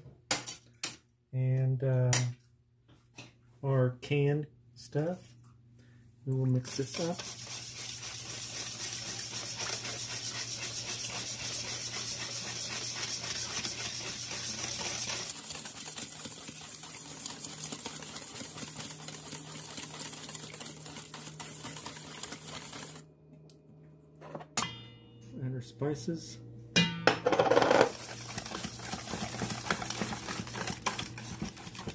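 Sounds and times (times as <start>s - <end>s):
whisk scraping metal bowl: 6.6s - 23.0s, 27.6s - 31.9s.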